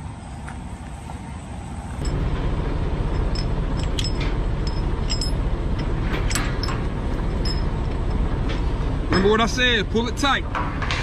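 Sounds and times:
steady low rumble: 0.8s - 11.0s
steel chain clinking and rattling: 2.0s - 8.6s.

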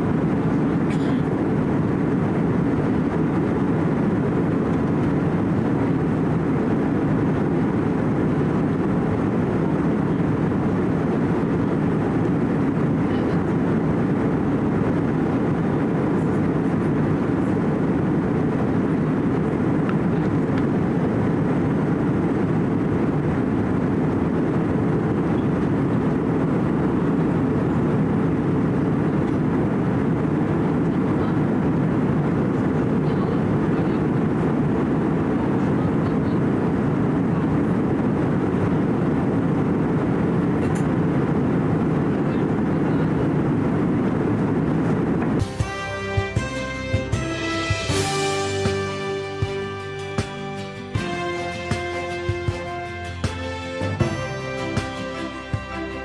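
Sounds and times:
jet cabin engine and airflow hum: 0.0s - 56.0s.

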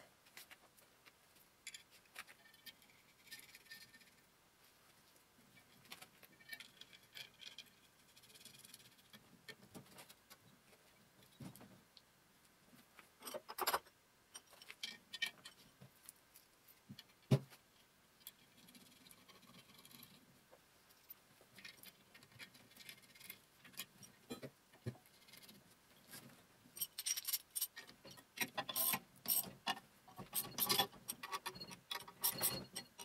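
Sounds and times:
small metal parts clinking: 26.8s - 33.0s.

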